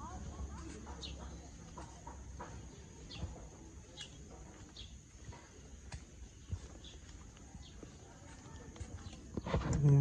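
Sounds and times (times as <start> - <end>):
small birds chirping: 0.0 - 10.0.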